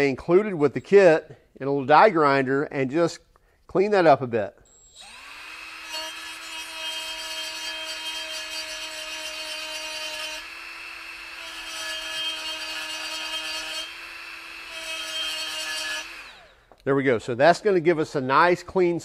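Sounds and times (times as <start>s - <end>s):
die grinder grinding metal: 4.7s - 16.6s.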